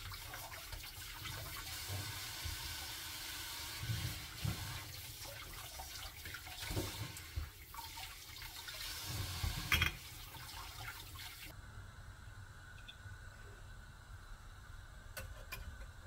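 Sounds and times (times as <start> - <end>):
water running from tap: 0.0 - 11.5.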